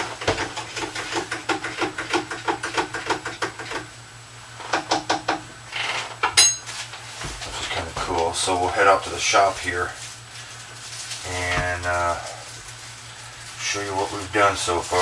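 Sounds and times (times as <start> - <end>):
kitchenware clinking: 6.4 - 6.7.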